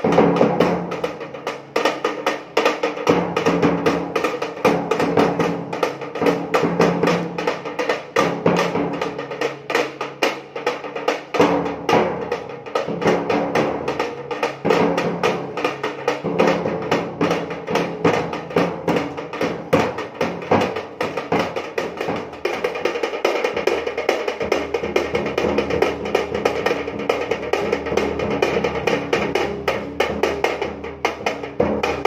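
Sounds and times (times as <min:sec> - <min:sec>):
hand-held frame drum: 0:00.0 - 0:32.0.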